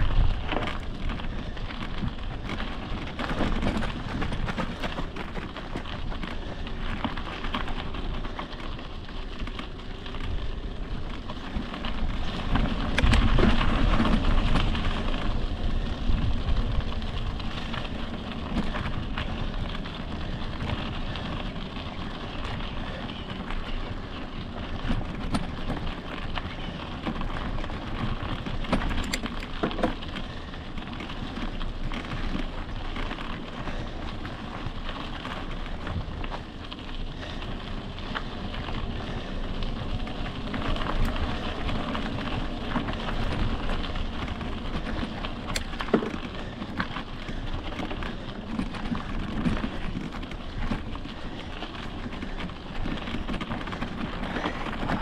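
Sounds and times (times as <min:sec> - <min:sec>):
bike clicks and rattles: 0:00.0 - 0:55.0
tyres crunching over gravel: 0:00.0 - 0:55.0
wind buffeting microphone: 0:00.0 - 0:55.0.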